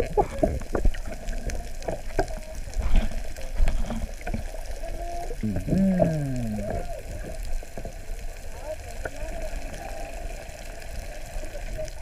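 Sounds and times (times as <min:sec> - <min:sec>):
muffled voice calling underwater: 0:00.0 - 0:00.8, 0:04.7 - 0:07.4
clicks underwater: 0:00.0 - 0:04.5, 0:05.4 - 0:06.9
water sloshing and bubbling: 0:00.0 - 0:12.0.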